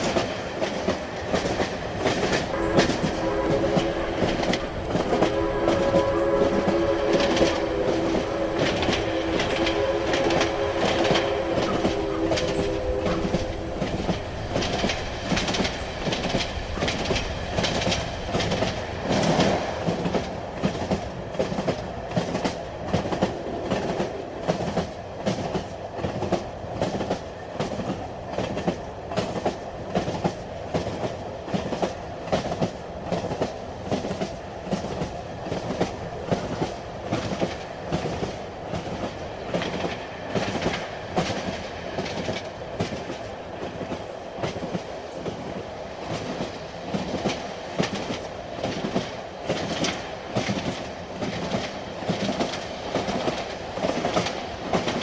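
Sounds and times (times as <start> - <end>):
wheels clacking over rail joints: 0.0 - 27.2
train rumbling: 0.0 - 55.0.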